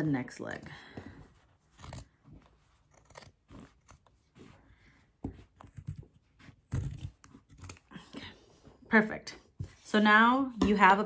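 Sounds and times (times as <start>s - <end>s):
scissors cutting denim: 1.6s - 4.4s, 6.6s - 8.0s.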